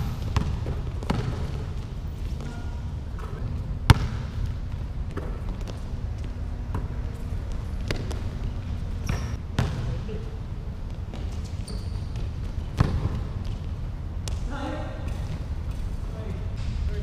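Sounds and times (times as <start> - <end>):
sneaker squeaks: 0.0 - 3.6, 5.1 - 10.4, 11.1 - 13.6
low rumble of hall: 0.0 - 17.0
basketball bouncing on hardwood: 0.1 - 1.8, 3.2 - 5.8, 12.7 - 13.6.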